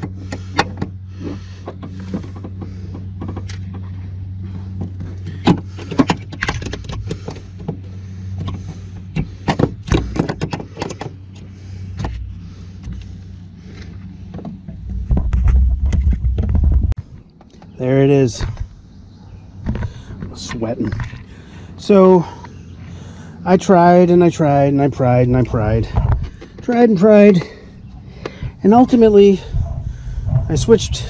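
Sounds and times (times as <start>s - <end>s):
steady low hum: 0.0s - 31.0s
loud low rumble: 27.5s - 31.0s.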